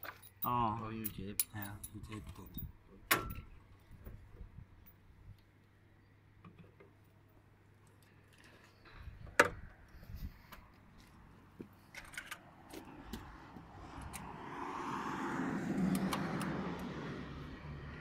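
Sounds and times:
passing vehicle: 12.4 - 18.0.

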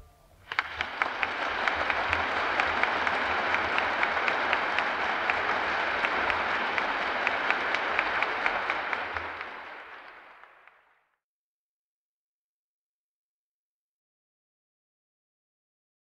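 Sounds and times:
audience applauding: 0.4 - 11.1.

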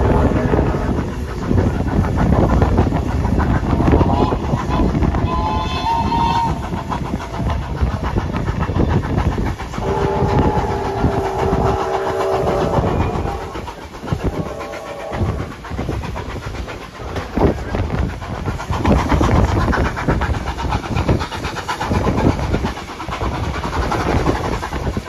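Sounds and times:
train wheels clattering over rail joints: 0.0 - 25.0
steam whistle chord: 9.8 - 13.1.

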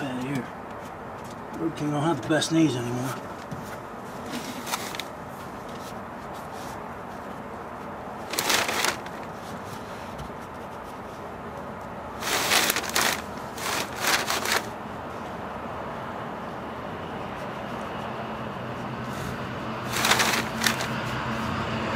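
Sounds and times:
gloved hands rubbing carpet: 12.2 - 14.7.

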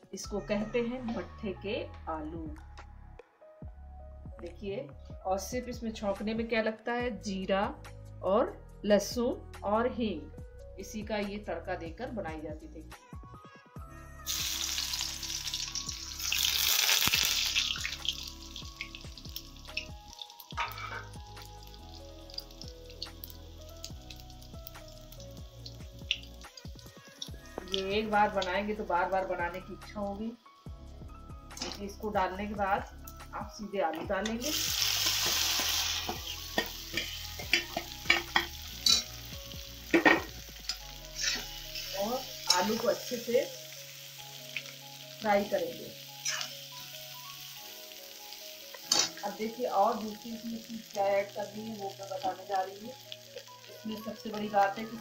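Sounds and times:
spices sizzling in hot oil: 14.2 - 55.0.

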